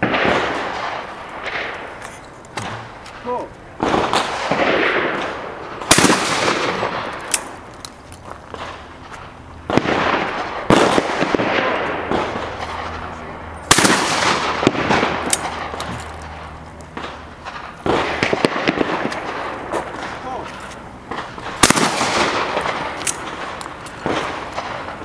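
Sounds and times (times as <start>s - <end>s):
distant gunshot cracks: 0.0s - 2.0s, 2.6s - 7.7s, 8.5s - 13.1s, 13.7s - 20.5s, 21.1s - 25.0s
shotgun shots with echo: 0.0s - 2.0s, 2.6s - 7.6s, 9.7s - 13.0s, 13.7s - 15.8s, 17.0s - 20.5s, 21.1s - 25.0s.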